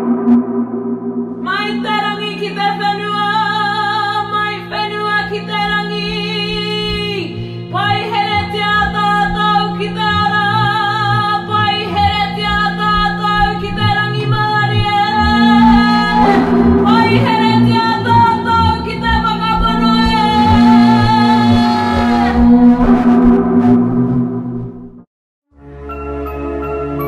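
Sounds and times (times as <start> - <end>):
steady low drone: 0.0 - 25.1
person singing long wavering notes: 1.4 - 23.6.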